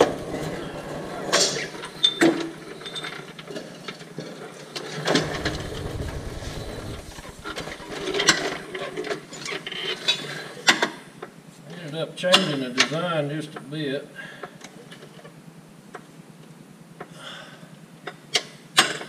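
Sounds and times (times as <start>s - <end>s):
low rumble: 0.0s - 3.3s, 5.1s - 9.1s.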